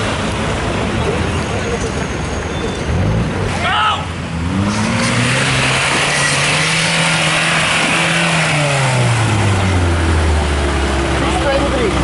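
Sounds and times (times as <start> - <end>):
tyres churning through dirt: 0.0 - 12.0
buggy engine at high revs: 2.7 - 12.0.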